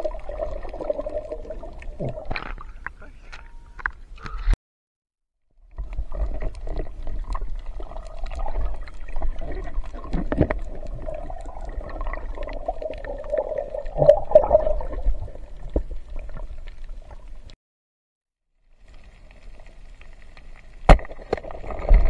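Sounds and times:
water moving underwater: 0.0s - 4.5s, 5.6s - 17.6s, 18.7s - 22.0s.

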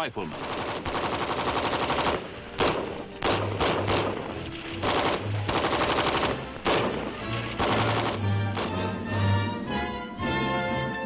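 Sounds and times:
automatic rifle bursts: 0.3s - 8.8s.

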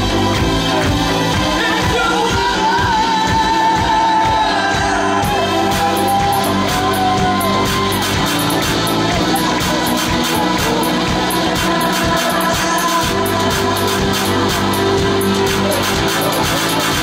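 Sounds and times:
rock band playing loudly: 0.0s - 17.0s
singer holding long sliding notes: 0.0s - 17.0s.

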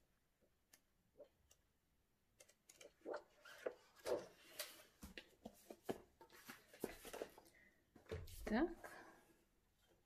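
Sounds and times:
paper pages rustling: 2.7s - 7.5s.

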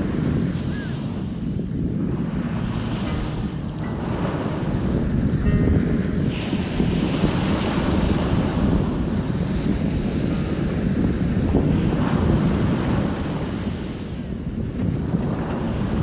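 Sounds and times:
sea waves breaking on sand: 0.0s - 16.0s
wind rumbling on microphone: 0.0s - 16.0s.

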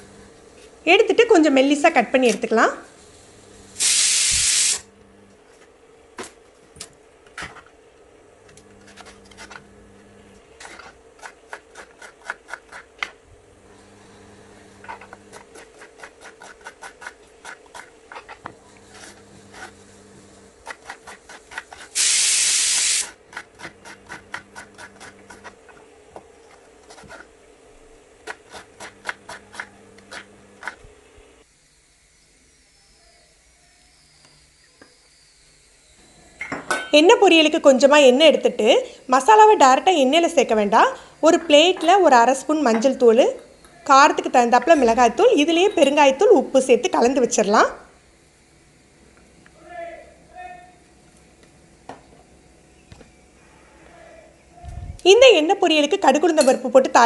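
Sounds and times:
knife rasping: 8.7s - 9.7s, 10.6s - 13.0s, 14.2s - 22.0s, 23.1s - 25.8s, 26.5s - 27.3s, 28.2s - 30.9s.

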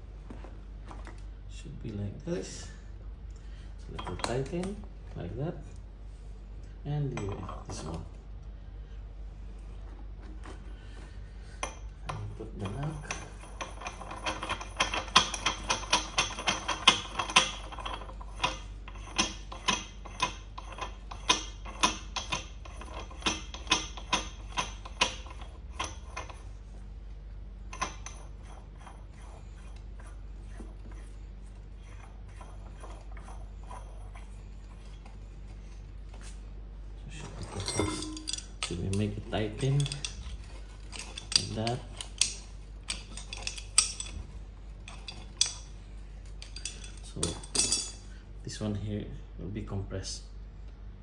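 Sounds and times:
faint low hum: 0.0s - 51.0s
metal nut spinning on threads: 12.4s - 26.6s, 27.7s - 35.0s, 37.4s - 44.2s.

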